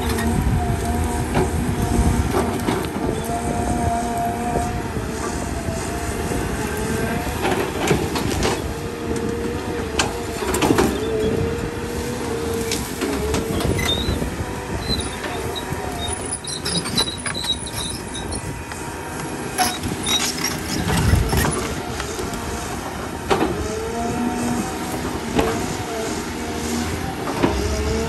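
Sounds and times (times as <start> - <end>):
excavator diesel engine: 0.0 - 28.0
hydraulic whine wavering: 0.0 - 28.0.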